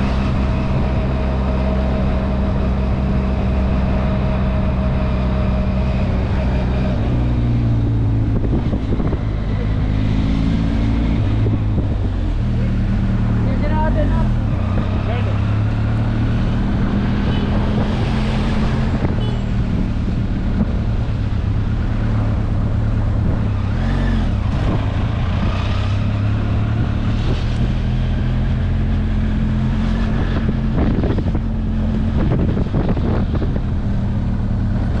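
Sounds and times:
wind noise on microphone: 0.0s - 12.5s, 16.1s - 35.0s.

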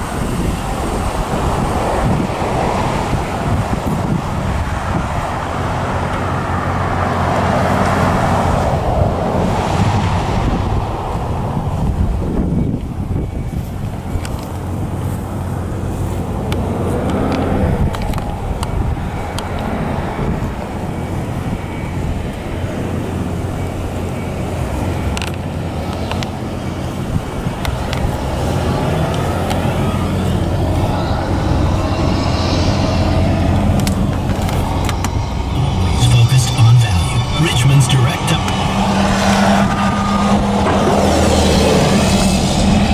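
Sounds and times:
wind buffeting microphone: 0.0s - 35.6s, 38.5s - 42.9s
pickup engine idling: 11.8s - 42.9s.

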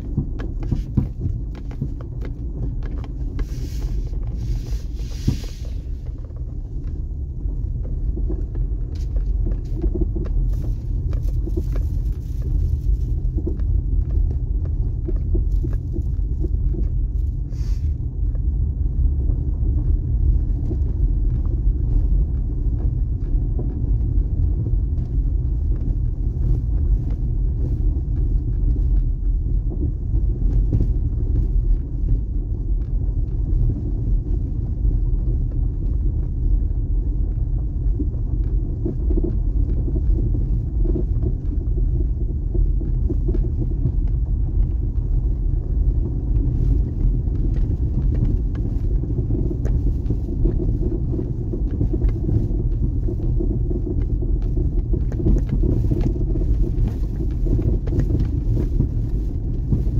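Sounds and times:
vehicle interior engine and road rumble: 0.0s - 59.9s.

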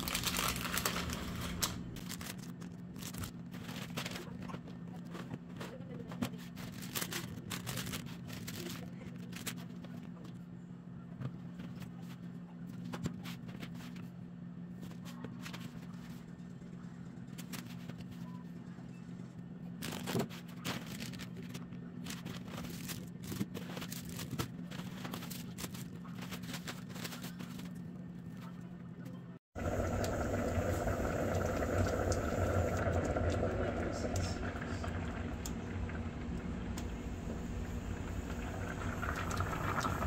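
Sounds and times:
plastic packaging crinkling: 0.0s - 4.6s, 6.3s - 9.9s, 19.8s - 28.4s
low hum: 29.6s - 40.0s.

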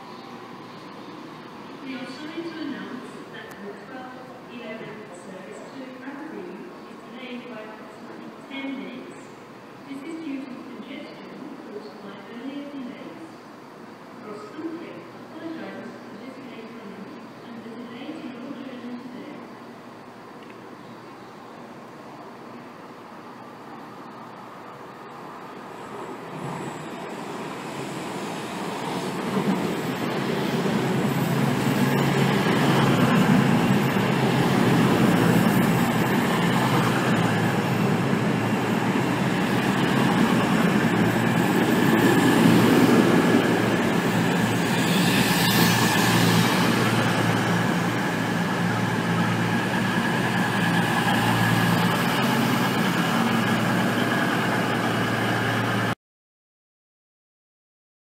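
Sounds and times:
diesel train engine humming: 24.3s - 55.9s
high whine: 25.8s - 56.0s.

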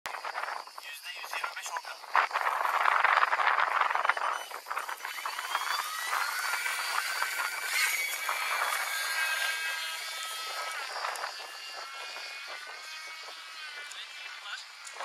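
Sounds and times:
electric motor and propeller whine: 2.1s - 15.0s.

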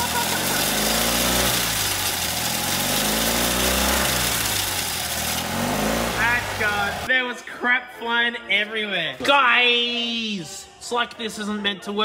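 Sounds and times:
small car engine running: 0.0s - 7.1s.

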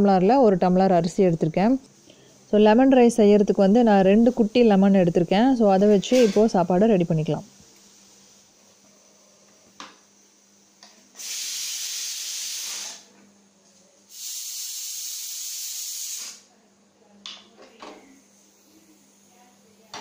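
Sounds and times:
pressure cooker hissing steam: 11.1s - 13.2s, 14.1s - 16.5s, 18.2s - 20.0s.

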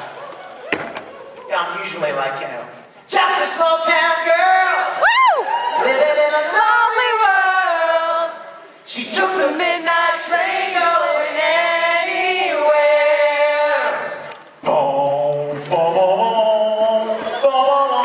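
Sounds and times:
man singing a cappella: 5.8s - 9.7s, 14.6s - 18.0s.

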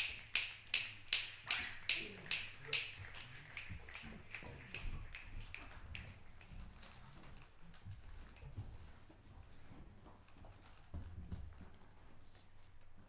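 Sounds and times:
audience finger snaps: 0.0s - 6.9s.

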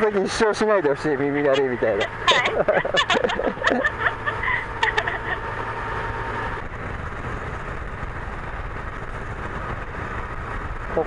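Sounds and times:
road noise: 0.0s - 11.0s
wind noise: 1.5s - 11.0s.

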